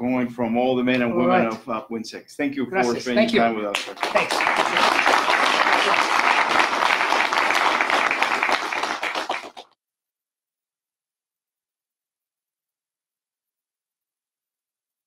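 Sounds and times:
audience applauding: 3.0 - 9.7.

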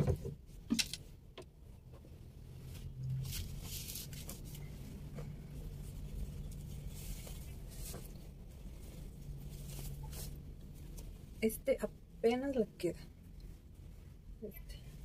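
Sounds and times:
clothes rustling: 1.6 - 11.4.

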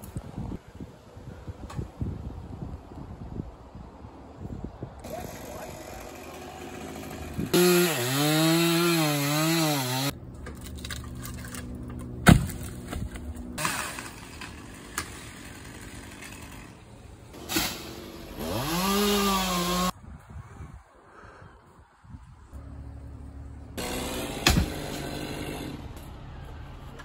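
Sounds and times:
chainsaw cutting wood: 5.0 - 10.2, 13.6 - 19.9, 23.8 - 26.0.

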